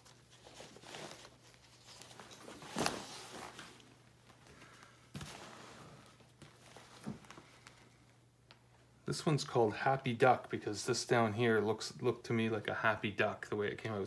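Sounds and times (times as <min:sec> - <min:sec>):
plastic sleeves rustling: 0:00.0 - 0:08.8
faint steady hum: 0:00.0 - 0:14.0.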